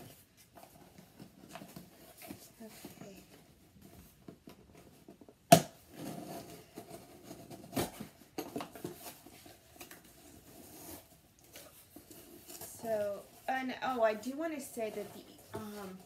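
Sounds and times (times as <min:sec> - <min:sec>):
sharp cardboard cracks: 0:05.5 - 0:05.8
cardboard scraping and rustling: 0:05.9 - 0:13.6.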